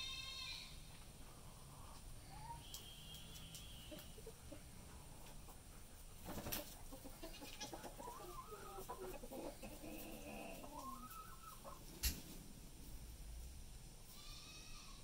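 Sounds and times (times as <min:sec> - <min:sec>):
turkey calling: 0:07.3 - 0:12.2.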